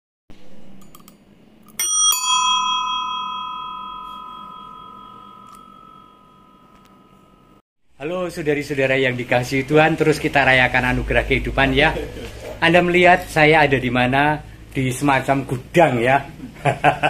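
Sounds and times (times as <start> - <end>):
bell ringing: 1.7 - 7.6.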